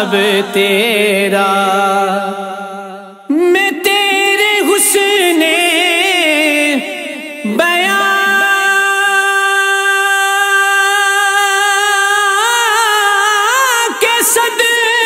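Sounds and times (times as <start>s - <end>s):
man singing: 0.0s - 15.0s.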